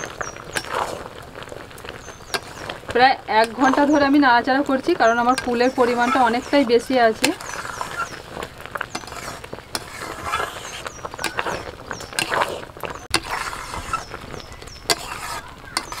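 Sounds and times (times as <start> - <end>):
spatula scraping a metal pot: 0.0 - 16.0
wet churning and squelching: 0.0 - 16.0.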